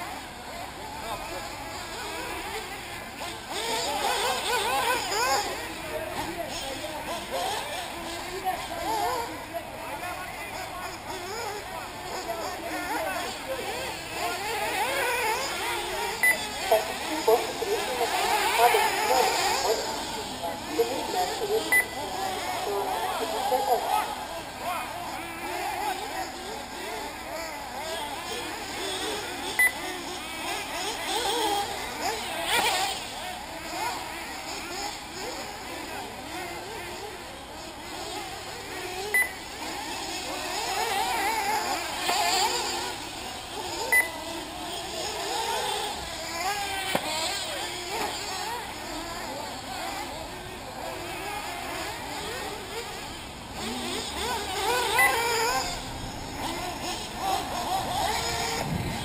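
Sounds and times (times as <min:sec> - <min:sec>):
model buggy engines whining: 0:00.0 - 0:59.0
short electronic beep: 0:21.7 - 0:22.0, 0:39.2 - 0:39.4, 0:43.9 - 0:44.1.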